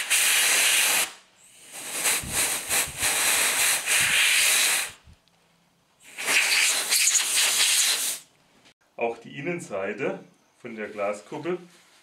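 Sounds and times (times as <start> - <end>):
compressed air blow gun hissing: 0.0 - 5.0, 6.0 - 8.3.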